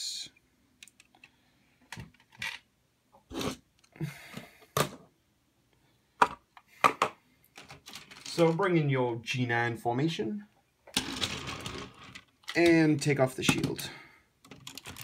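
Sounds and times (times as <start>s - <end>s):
plastic toy parts clicking: 14.4s - 15.0s.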